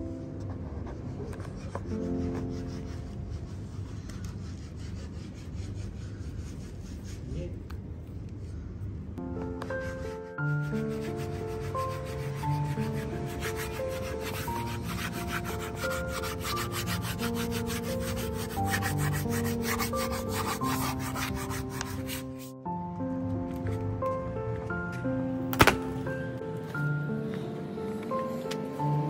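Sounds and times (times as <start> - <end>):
melodic background music: 9.2 - 29.0
hand tool rubbing on hardboard: 9.7 - 22.6.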